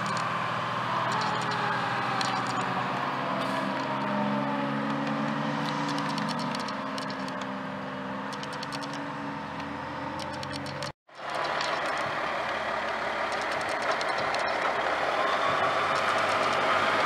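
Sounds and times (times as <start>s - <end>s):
fire engine motor running: 0.0s - 17.0s.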